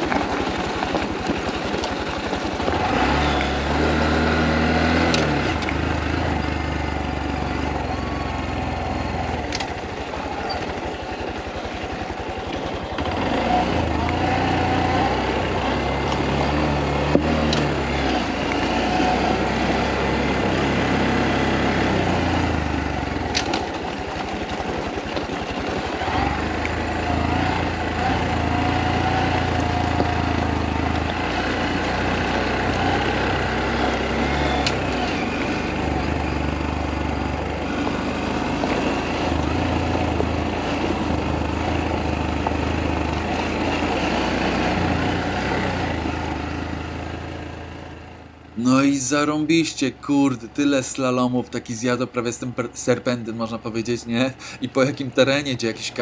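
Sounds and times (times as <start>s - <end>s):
stones clicking under tyres: 0.0s - 6.5s, 9.2s - 14.5s, 15.2s - 47.2s
motorcycle engine running: 0.0s - 50.1s.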